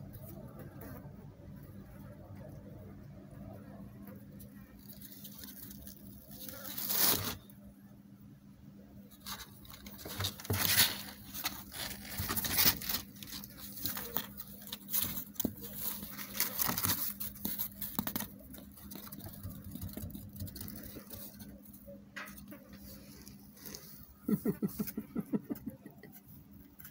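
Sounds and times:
cardboard crinkling: 0:04.8 - 0:07.4, 0:09.2 - 0:24.6
kittens scratching on cardboard: 0:09.1 - 0:25.1.

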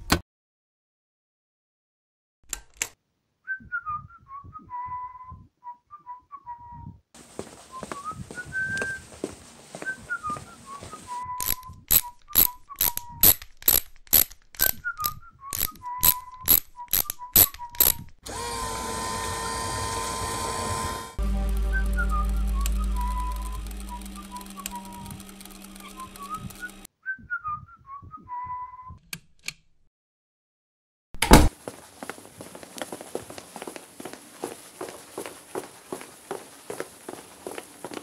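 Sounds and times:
man whistling a tune: 0:03.5 - 0:07.0, 0:07.7 - 0:09.0, 0:09.8 - 0:13.2, 0:14.7 - 0:17.9, 0:21.3 - 0:29.0
footsteps: 0:07.2 - 0:12.6, 0:31.4 - 0:38.0
electrical hum: 0:18.2 - 0:26.9.

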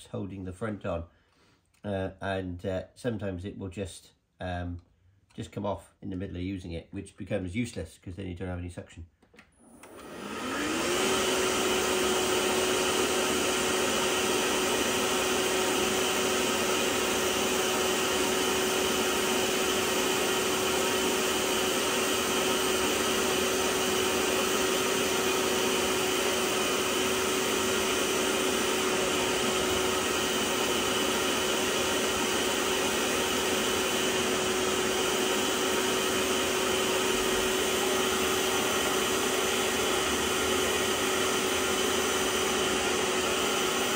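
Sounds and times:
carpet cleaner motor whining: 0:09.4 - 0:43.9.

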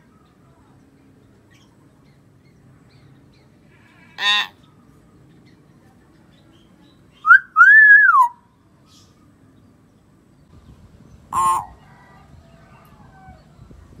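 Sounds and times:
bird whistling: 0:07.2 - 0:08.4
harsh bird call: 0:11.3 - 0:12.1.

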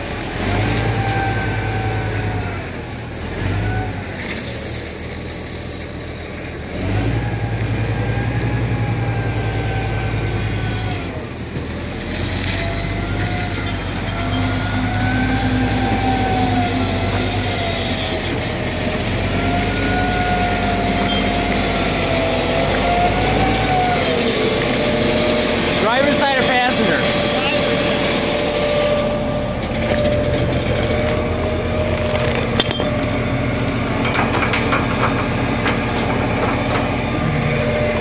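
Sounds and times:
heavy machine engine running: 0:00.0 - 0:38.0
wavering high-pitched squeal: 0:09.6 - 0:33.8.

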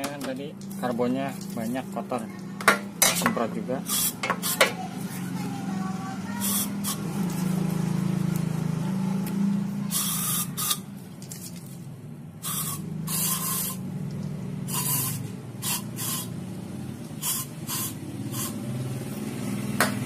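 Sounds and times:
aerosol spray hisses: 0:12.4 - 0:13.8, 0:14.7 - 0:16.3, 0:17.2 - 0:18.6.

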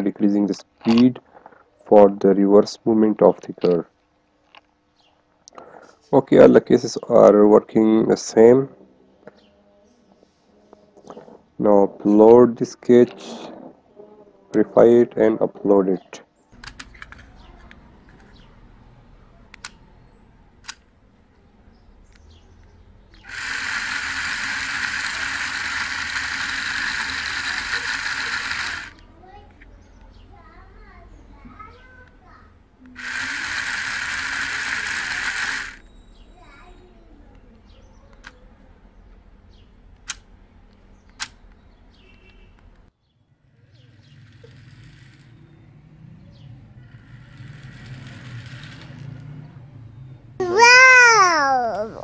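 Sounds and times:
sharp clicks: 0:16.6 - 0:18.4
toy car gear motor whirring: 0:23.1 - 0:29.0, 0:32.9 - 0:35.8, 0:43.8 - 0:45.6, 0:46.8 - 0:49.2.

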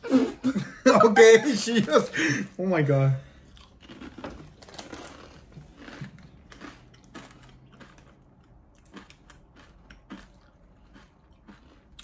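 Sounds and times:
corn chips being chewed: 0:03.3 - 0:12.0.

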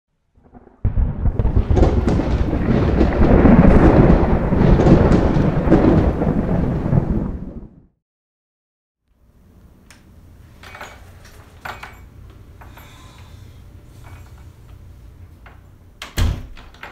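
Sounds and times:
thunder rumbling with crackles: 0:00.4 - 0:08.0.

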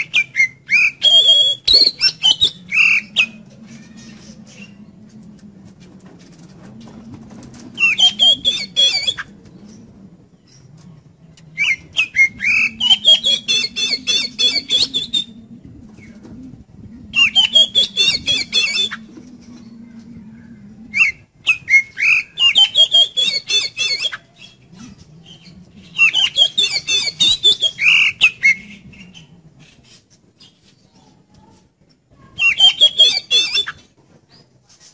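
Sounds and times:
bird singing chattering and whistles: 0:00.0 - 0:03.4, 0:07.8 - 0:09.3, 0:11.6 - 0:15.4, 0:17.2 - 0:19.0, 0:21.0 - 0:29.3, 0:32.4 - 0:33.8.

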